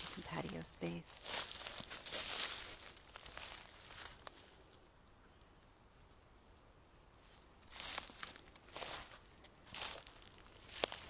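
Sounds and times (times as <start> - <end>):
dry leaves crunching underfoot: 0.0 - 4.8, 7.2 - 11.0.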